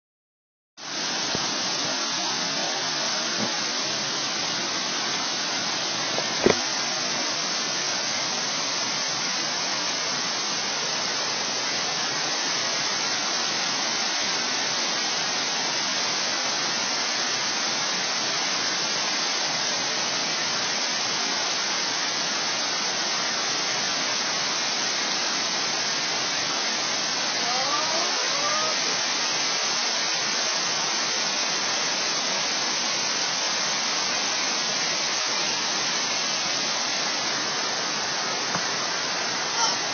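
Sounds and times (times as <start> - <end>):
waterfall rushing down rock: 0.8 - 39.9
rising voice: 39.5 - 39.9.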